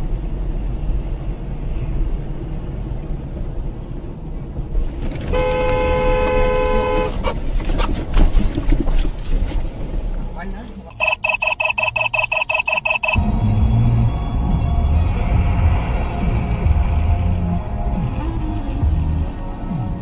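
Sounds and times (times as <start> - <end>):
car driving on snowy road: 0.0 - 20.0
car horn honking: 5.3 - 7.2, 10.9 - 13.2.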